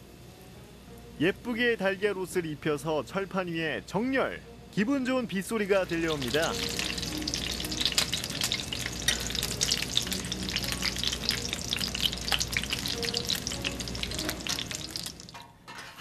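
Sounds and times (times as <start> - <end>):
patties sizzling on a griddle: 4.8 - 15.9.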